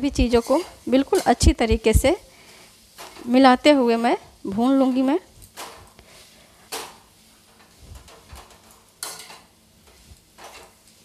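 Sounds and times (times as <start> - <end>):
metal ladle scraping pan: 0.2 - 1.5.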